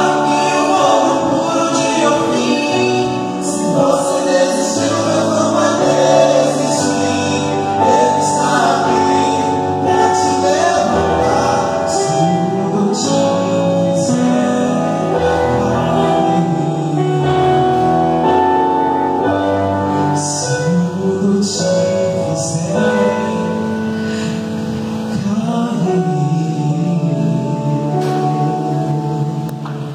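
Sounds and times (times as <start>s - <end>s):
male group singing gospel: 0.0s - 18.5s, 20.2s - 29.9s
instrumental backing: 0.0s - 29.9s.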